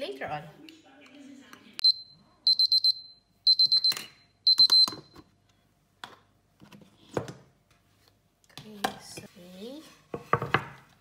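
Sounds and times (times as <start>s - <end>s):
kitchen timer beeping: 1.8s - 5.2s.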